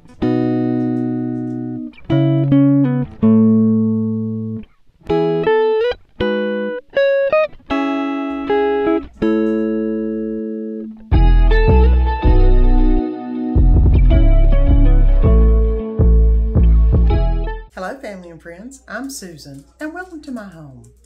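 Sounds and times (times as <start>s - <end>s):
solo guitar playing: 0.0s - 17.7s.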